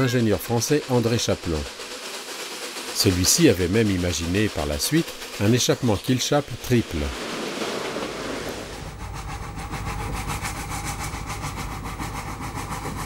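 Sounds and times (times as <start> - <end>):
steam locomotive exhaust hissing: 0.0 - 13.0
steam locomotive rapid beat: 0.0 - 13.0.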